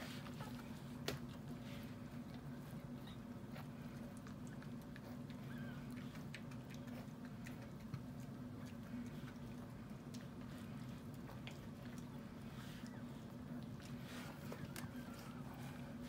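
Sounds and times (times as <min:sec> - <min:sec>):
puppies moving with clicks and rustles: 0:00.0 - 0:16.0
steady low hum: 0:00.0 - 0:16.0.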